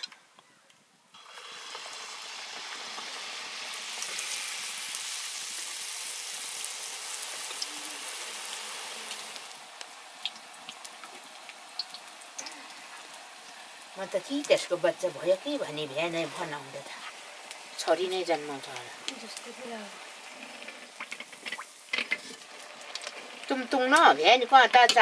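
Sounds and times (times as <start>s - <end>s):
dough sizzling in hot oil: 1.1s - 25.0s
oil crackling: 1.2s - 25.0s.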